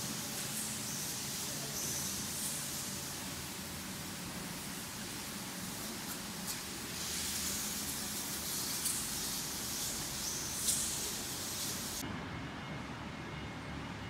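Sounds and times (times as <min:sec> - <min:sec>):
room noise hiss: 0:00.0 - 0:12.2.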